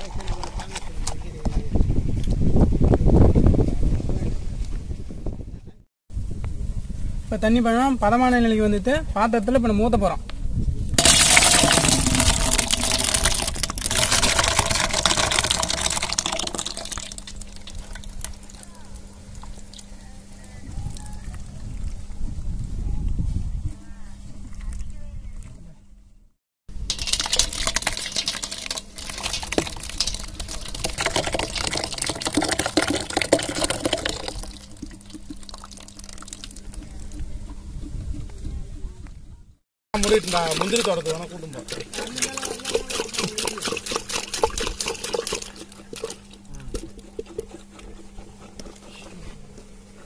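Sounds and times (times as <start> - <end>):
juice pouring into a metal pot: 11.0 - 19.8, 26.7 - 37.3, 40.0 - 47.8.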